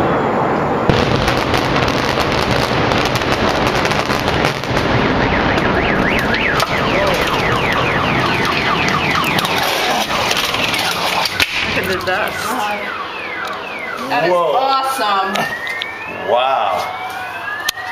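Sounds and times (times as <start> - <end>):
building demolition rumble and crackle: 0.0 - 14.1
car alarm wailing: 1.7 - 17.9.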